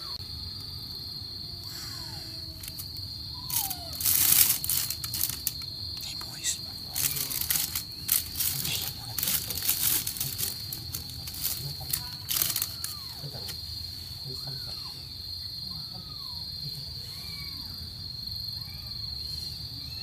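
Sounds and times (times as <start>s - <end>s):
insect trill: 0.0s - 20.0s
kittens mewing: 1.6s - 20.0s
plastic bag rustling: 2.6s - 2.9s, 3.5s - 13.6s.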